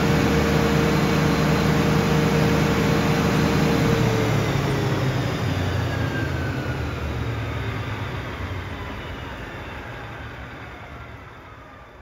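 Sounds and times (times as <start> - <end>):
diesel generator rumbling: 0.0 - 8.3
faint generator whine: 0.0 - 12.0.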